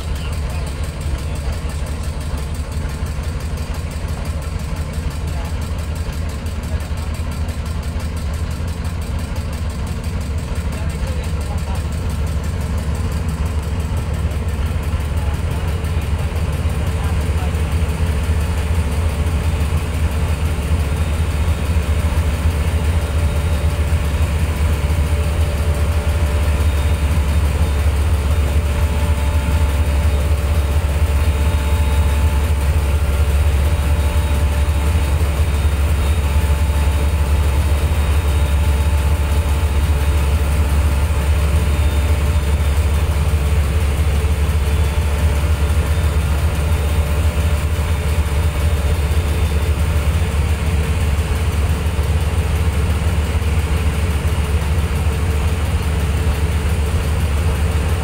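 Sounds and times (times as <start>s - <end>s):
motorboat engine droning: 0.0s - 58.0s.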